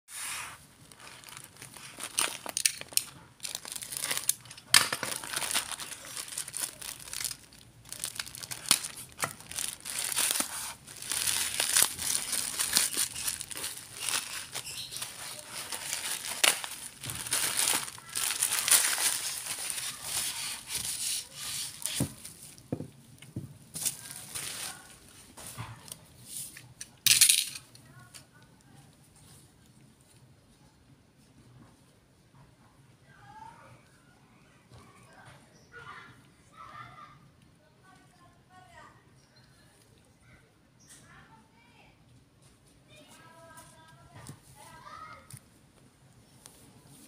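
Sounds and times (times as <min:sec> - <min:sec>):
plastic bag crinkling and tearing: 0:00.8 - 0:22.6, 0:23.7 - 0:25.2.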